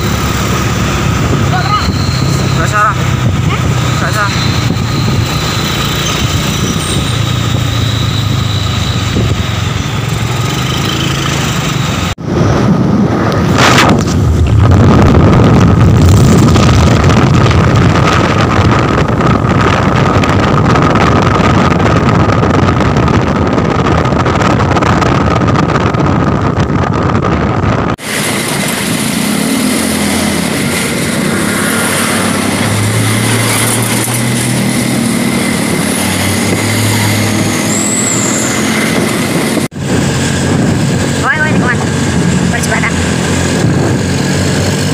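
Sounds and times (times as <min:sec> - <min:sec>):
diesel truck engine and tyres: 0:00.0 - 0:44.9
truck driving past: 0:28.0 - 0:41.2.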